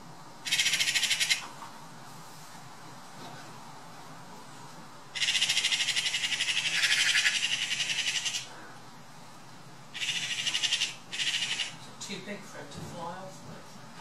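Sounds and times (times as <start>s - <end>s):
magpie rattling chatter: 0.4s - 1.5s, 5.2s - 8.5s, 9.9s - 11.8s.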